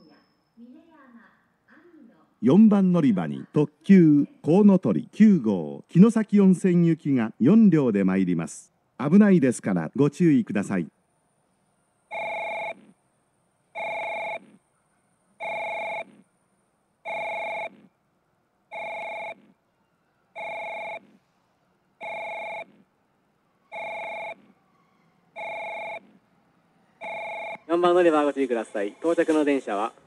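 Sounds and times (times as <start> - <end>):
electronic warning chime: 23.7 - 24.4, 25.4 - 26.0.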